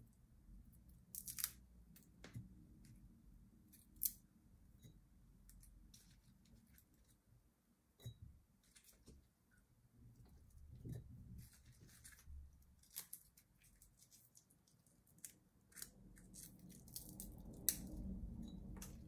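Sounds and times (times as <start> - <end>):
faint room hum: 0.0 - 19.0
dry papery skins crackling: 10.5 - 18.2.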